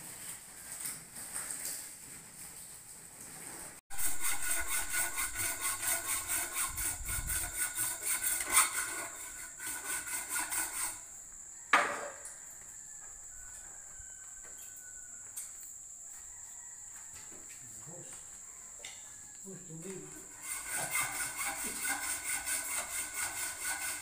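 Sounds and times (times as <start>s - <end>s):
rhythmic scraping on steel mesh: 3.9s - 11.1s, 20.3s - 24.0s
high insect trill: 3.9s - 24.0s.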